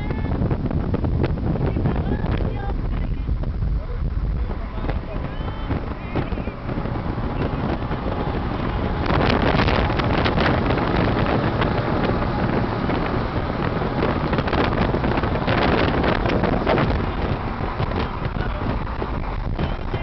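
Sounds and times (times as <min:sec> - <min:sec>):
vehicle road noise: 0:00.0 - 0:20.0
wind on microphone: 0:00.0 - 0:20.0
truck passing alongside: 0:04.0 - 0:20.0.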